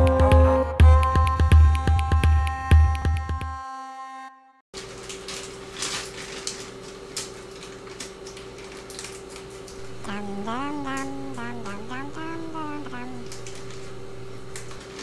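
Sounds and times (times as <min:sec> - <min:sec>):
high voice chattering: 0:09.8 - 0:14.0
steady hum: 0:09.8 - 0:15.0.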